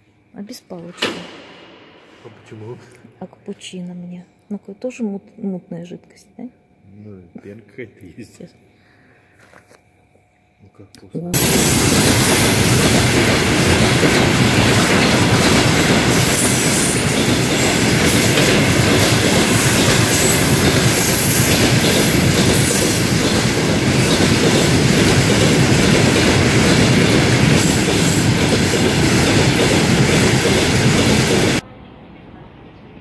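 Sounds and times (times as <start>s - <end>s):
freight train steel wheels on rails: 11.4s - 31.6s.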